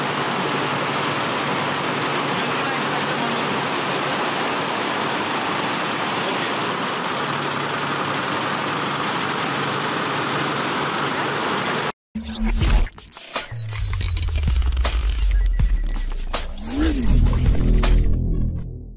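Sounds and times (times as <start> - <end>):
sewing machines running: 0.0 - 11.9
ventilation running: 0.0 - 11.9.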